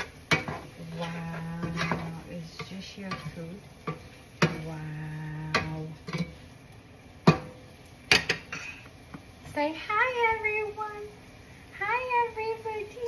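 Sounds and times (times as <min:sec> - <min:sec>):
food sizzling in a frying pan: 0:00.0 - 0:13.0
spatula knocking against pan: 0:07.2 - 0:08.5.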